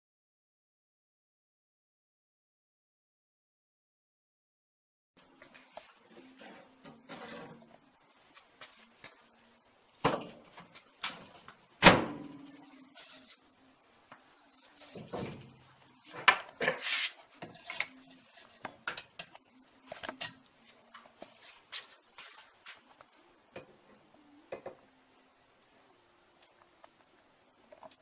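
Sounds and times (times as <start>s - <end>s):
knocks and clunks of kiln handling: 14.9s - 16.8s.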